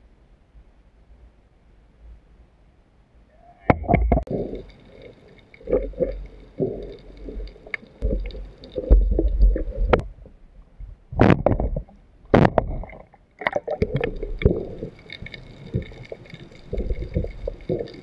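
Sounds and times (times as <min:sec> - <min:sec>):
water sloshing and gurgling: 0:03.7 - 0:18.0.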